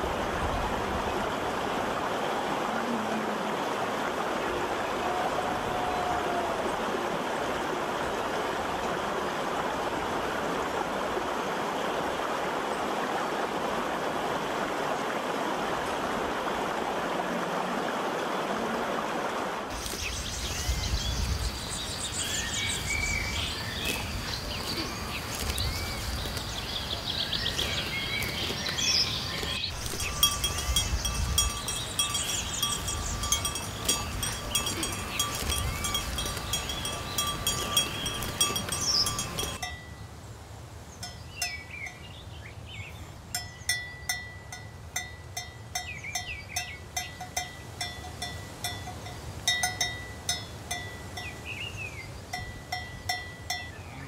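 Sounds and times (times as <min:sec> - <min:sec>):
stream rushing over rocks: 0:00.0 - 0:54.0
birds chirping: 0:19.7 - 0:40.1, 0:40.9 - 0:44.4, 0:45.4 - 0:54.0.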